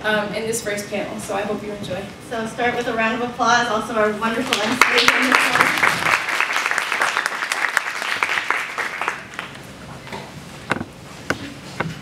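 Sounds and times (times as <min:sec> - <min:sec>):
audience applauding: 0:04.5 - 0:09.6.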